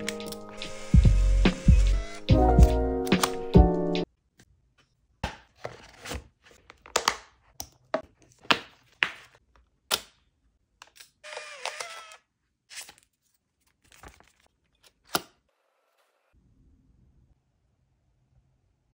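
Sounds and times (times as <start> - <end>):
camera motor whirring: 0.6 - 2.2, 11.2 - 12.2.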